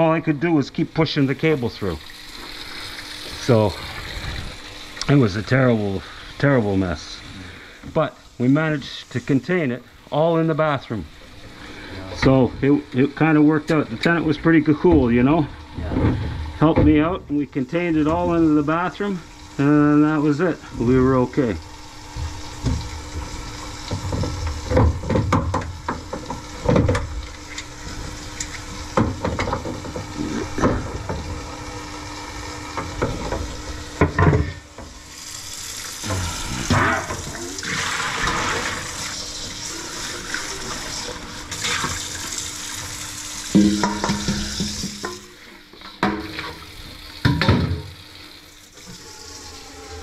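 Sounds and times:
faucet water running into sink: 0:00.0 - 0:50.0.

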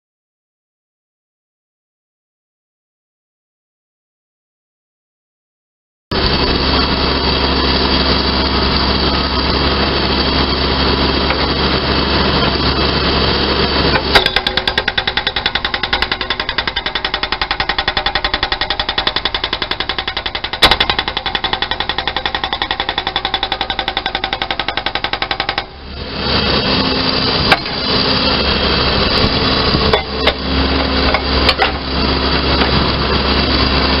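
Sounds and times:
diesel engine running: 0:06.1 - 0:34.0
hydraulic breaker hammering ground: 0:09.9 - 0:34.0.

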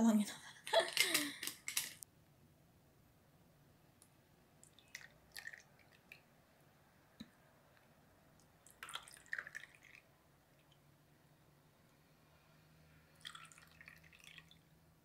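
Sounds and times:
juice trickling and splashing: 0:04.6 - 0:06.2, 0:08.6 - 0:10.1, 0:13.2 - 0:14.7.

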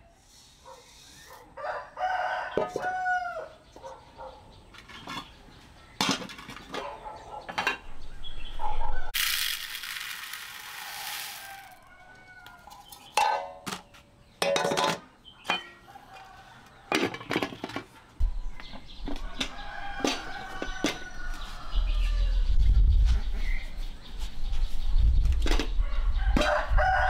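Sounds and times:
clinks and knocks: 0:13.1 - 0:15.8, 0:16.9 - 0:17.9.

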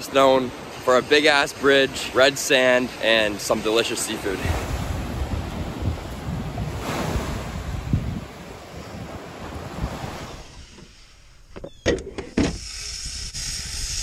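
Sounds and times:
small waves washing on sand: 0:00.0 - 0:10.6
wind buffeting microphone: 0:04.3 - 0:10.7.

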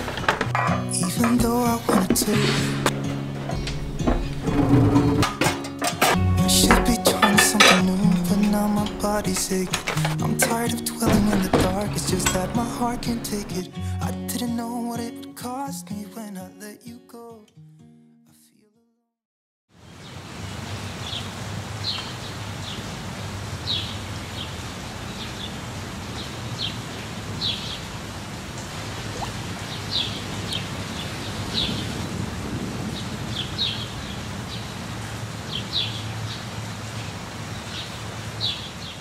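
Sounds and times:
steady rain falling: 0:06.3 - 0:13.6, 0:19.8 - 0:39.0.

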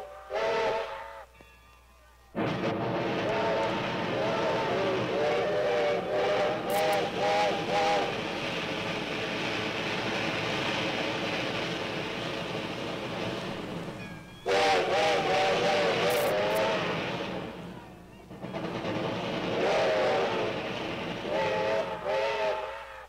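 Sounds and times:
steam locomotive chime whistle: 0:00.0 - 0:01.4, 0:03.2 - 0:23.0
steam hiss: 0:02.4 - 0:23.0.

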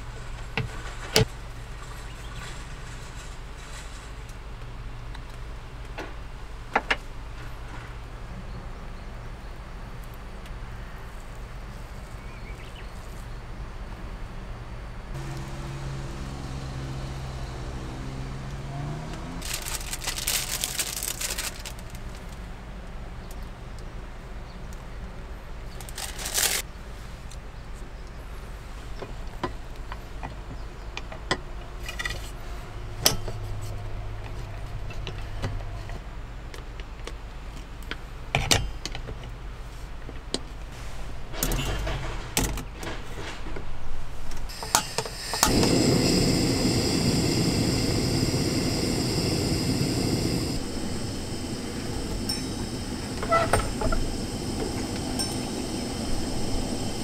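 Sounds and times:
gas stove hissing: 0:15.2 - 0:18.7, 0:43.0 - 0:57.0.

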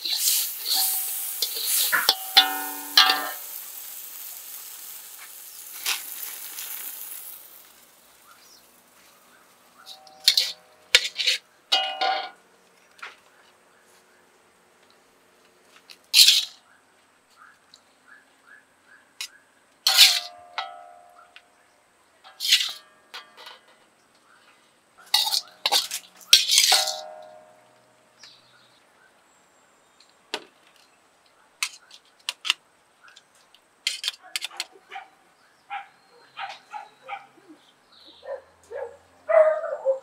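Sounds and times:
metal spatula scraping a wok: 0:00.0 - 0:07.6, 0:09.8 - 0:12.3, 0:16.2 - 0:16.6, 0:19.9 - 0:20.8, 0:22.3 - 0:23.8, 0:25.1 - 0:27.3
sharp metal clanks: 0:00.6 - 0:03.7, 0:09.8 - 0:12.4, 0:19.9 - 0:21.2, 0:22.3 - 0:23.8, 0:25.1 - 0:27.8.

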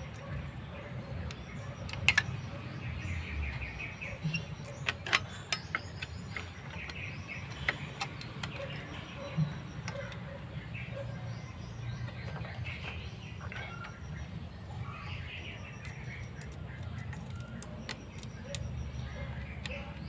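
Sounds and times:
faint birds chirping: 0:00.0 - 0:20.0
steady low hum: 0:00.0 - 0:20.0
metal parts clicking and tapping: 0:01.2 - 0:02.6, 0:03.8 - 0:10.2, 0:15.8 - 0:20.0.

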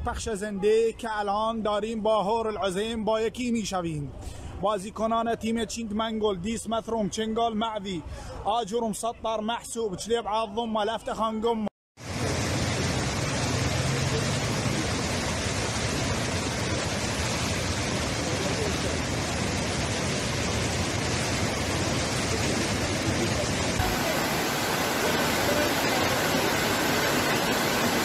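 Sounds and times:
floodwater rushing: 0:12.0 - 0:28.0.

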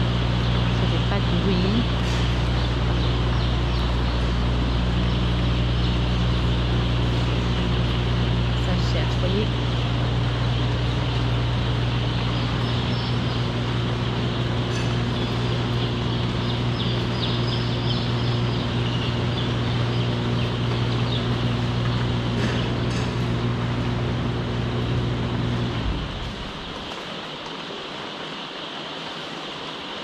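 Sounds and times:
chicks peeping: 0:00.0 - 0:27.1
machinery humming: 0:00.0 - 0:28.4.

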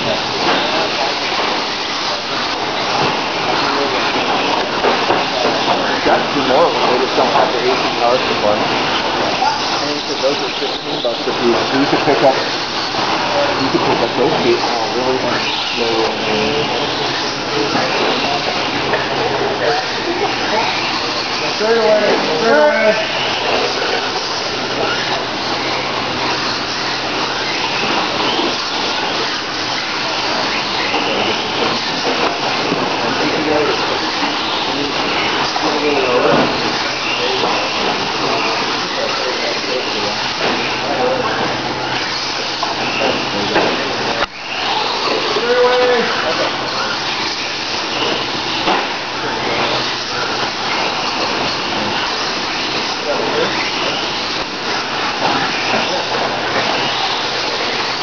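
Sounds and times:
wavering motor whines: 0:00.0 - 0:58.0.

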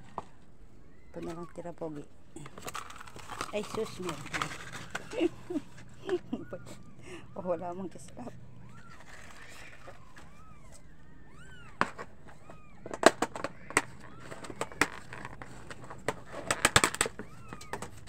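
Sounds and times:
kittens mewing: 0:03.8 - 0:18.0
pawing at plastic food tray: 0:07.9 - 0:18.0.

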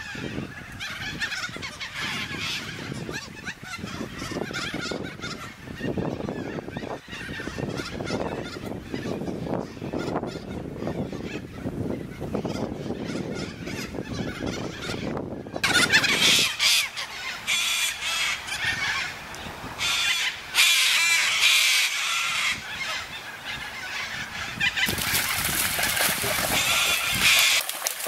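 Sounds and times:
cockatoos screeching: 0:19.8 - 0:28.0.

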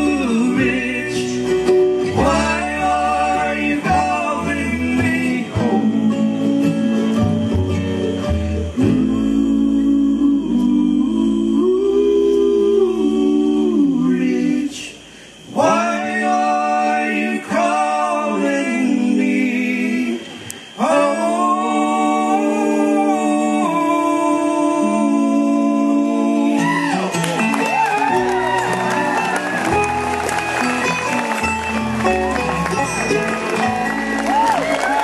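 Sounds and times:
men singing in harmony: 0:00.0 - 0:27.2.

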